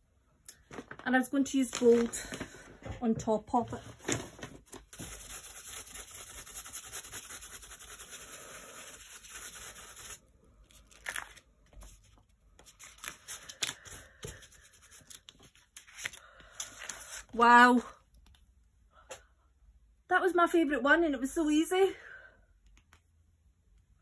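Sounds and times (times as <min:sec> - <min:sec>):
paper being handled: 0:00.6 - 0:02.7, 0:03.7 - 0:08.2, 0:08.8 - 0:17.4
paintbrush scrubbing on paper: 0:04.9 - 0:10.3.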